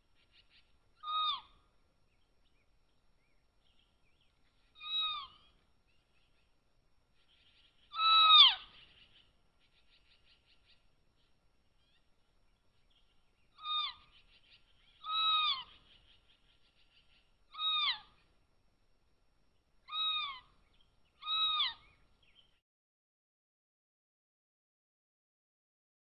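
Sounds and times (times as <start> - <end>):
kittens chirping calls: 4.8 - 5.4, 7.9 - 8.7, 13.5 - 18.3, 19.8 - 20.6, 21.2 - 21.9.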